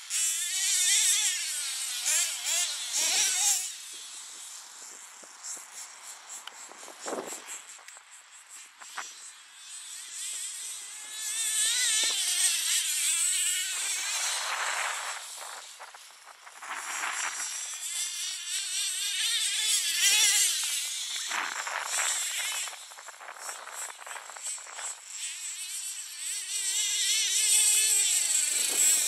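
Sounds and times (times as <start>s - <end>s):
nitro engines revving: 0.4s - 4.5s.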